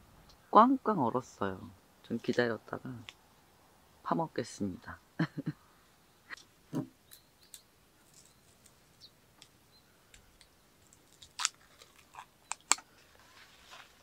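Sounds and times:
foil crackle: 0:10.9 - 0:14.0
foil lid crinkling: 0:10.9 - 0:14.0.

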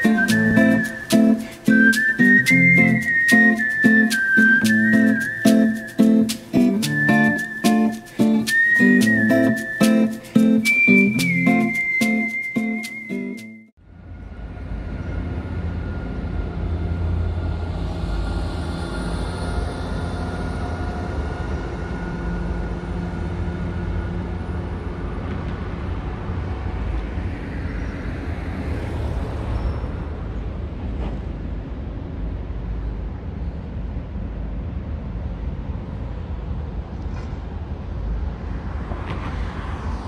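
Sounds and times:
industrial and traffic rumble: 0:00.0 - 0:13.1, 0:13.8 - 0:40.0
heavy truck passing: 0:13.9 - 0:32.6.

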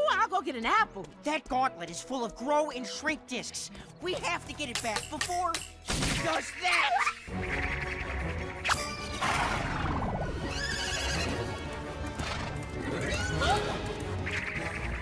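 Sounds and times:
background music: 0:00.0 - 0:15.0
cartoon zebra whinnying: 0:08.7 - 0:11.5.

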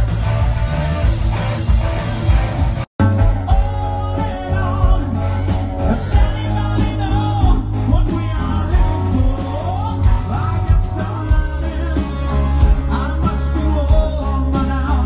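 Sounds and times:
live rock band playing: 0:00.0 - 0:15.0
person singing: 0:03.0 - 0:15.0.

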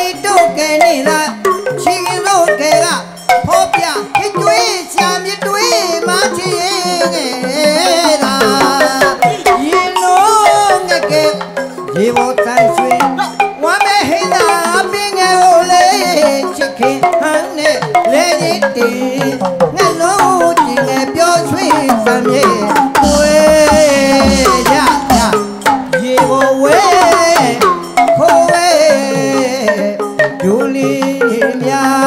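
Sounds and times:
tuned drum circle solo: 0:22.6 - 0:29.1.

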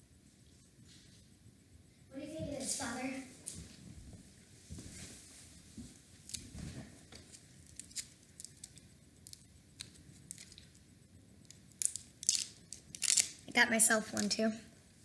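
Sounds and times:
candy wrapper crinkling: 0:07.2 - 0:13.5.

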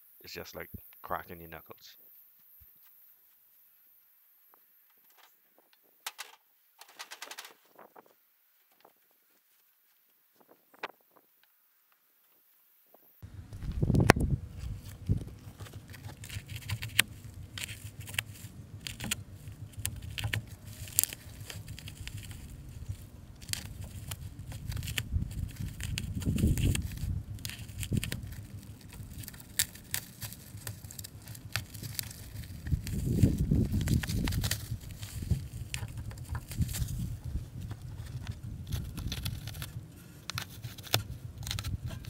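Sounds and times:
low bumps: 0:13.2 - 0:40.4
plastic wrapping crinkling and tearing: 0:14.6 - 0:42.0.

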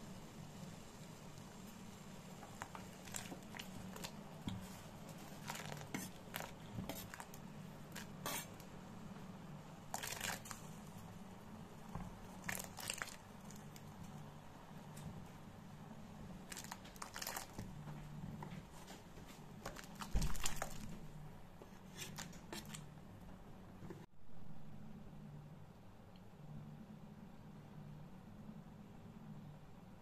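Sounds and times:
knife scraping cutting board: 0:08.2 - 0:08.5.

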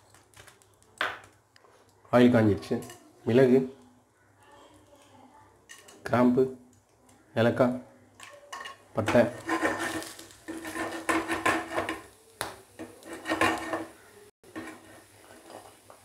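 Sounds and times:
spices clattering in metal pan: 0:02.6 - 0:03.2, 0:05.6 - 0:06.4, 0:08.1 - 0:16.0.

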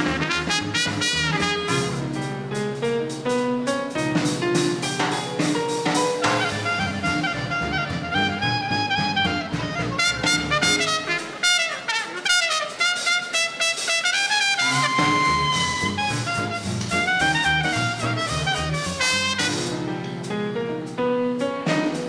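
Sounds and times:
swing band playing: 0:00.0 - 0:22.0
horn holding long note: 0:06.4 - 0:19.5.

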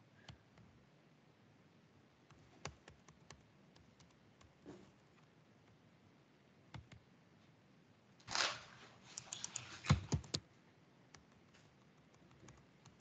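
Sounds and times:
keyboard and mouse clicks: 0:06.7 - 0:07.0, 0:09.1 - 0:10.4, 0:11.1 - 0:13.0.

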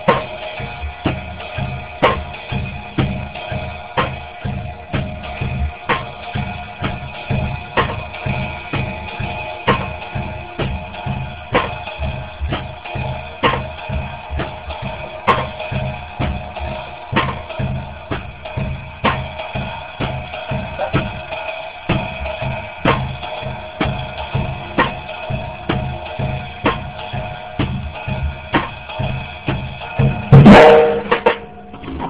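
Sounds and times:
drum kit swing pattern: 0:00.0 - 0:32.0.

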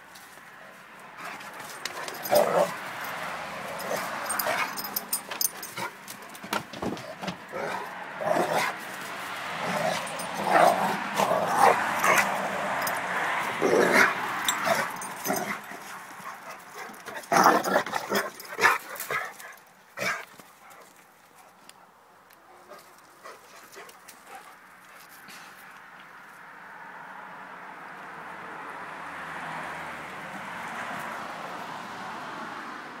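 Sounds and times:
dogs whining and growling: 0:02.0 - 0:02.8, 0:03.7 - 0:06.0.

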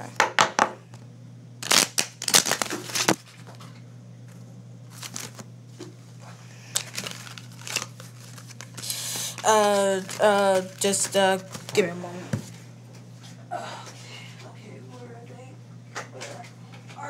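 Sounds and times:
playing cards shuffling: 0:01.6 - 0:03.6, 0:04.9 - 0:05.4, 0:06.7 - 0:12.6.

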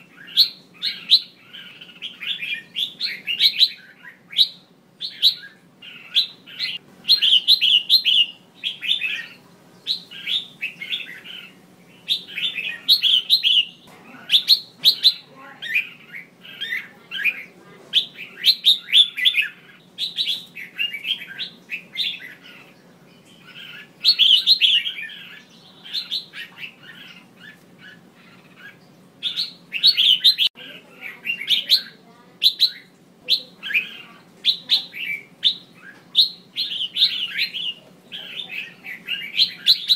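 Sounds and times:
bird chirping calls: 0:00.0 - 0:39.9.

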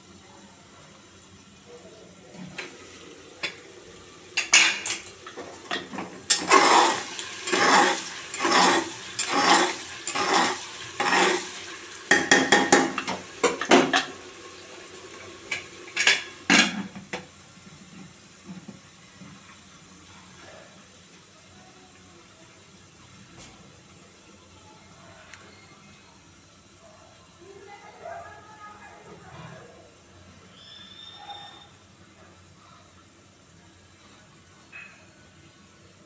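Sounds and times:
onions frying: 0:00.0 - 0:25.0
spoon scraping in pot: 0:05.8 - 0:11.5.

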